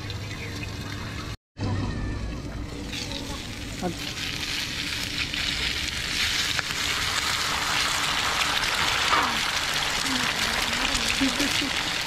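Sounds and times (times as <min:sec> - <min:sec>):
egg sizzling in a frying pan: 0:02.8 - 0:12.0.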